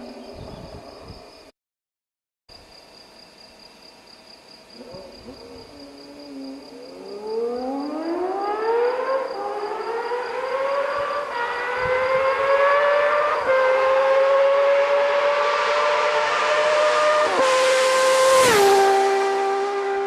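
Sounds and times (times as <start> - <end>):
motorcycle engine accelerating hard: 6.4 - 20.0.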